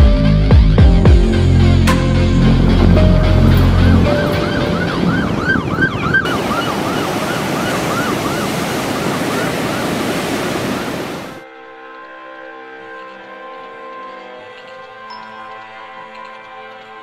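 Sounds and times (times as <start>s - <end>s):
wind: 1.2s - 17.0s
surf: 1.8s - 11.4s
emergency siren yelping: 3.6s - 11.4s.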